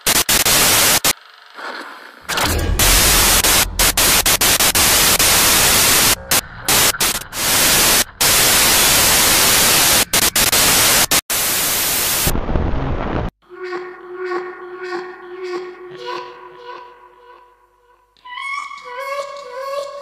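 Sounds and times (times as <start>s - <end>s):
loud hissing static: 0.0s - 1.2s, 2.3s - 13.3s.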